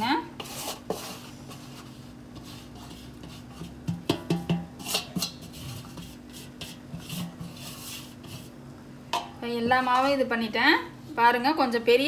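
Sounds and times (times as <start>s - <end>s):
steel plate knocking against pot: 3.9s - 4.7s.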